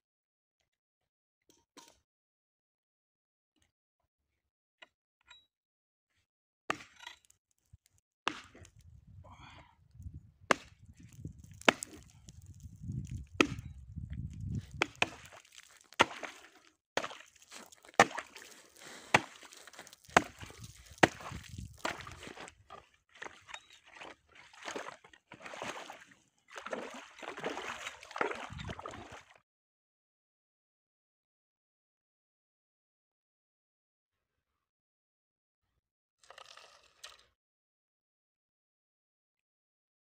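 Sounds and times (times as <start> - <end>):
axe chopping ice: 6.7 - 7.0, 8.3 - 8.6, 10.5 - 12.2, 13.0 - 13.7, 14.7 - 22.4
blade sloshing in slushy water: 10.5 - 13.9, 14.5 - 29.4
ice chips skittering: 11.0 - 13.6, 14.4 - 22.5.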